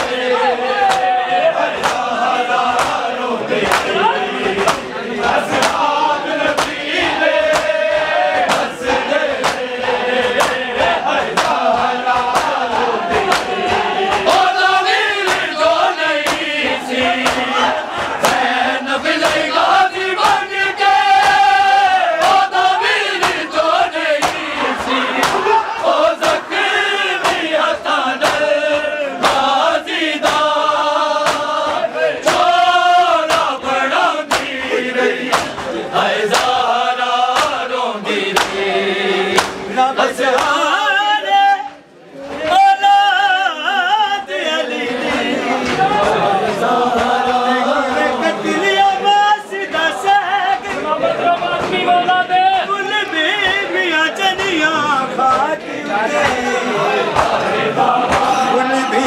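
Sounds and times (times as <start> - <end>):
men chanting a lament: 0.0 - 59.0
chest-beating slaps: 0.8 - 1.2, 1.8 - 20.5, 21.1 - 36.7, 37.3 - 37.7, 38.3 - 38.7, 39.3 - 39.7, 40.3 - 40.6, 57.1 - 58.4.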